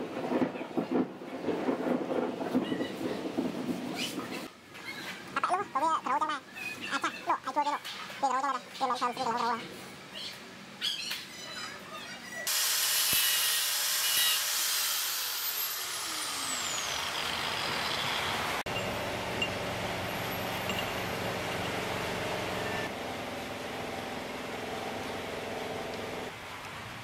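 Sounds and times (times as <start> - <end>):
power tool hiss with falling whine: 12.5 - 17.6.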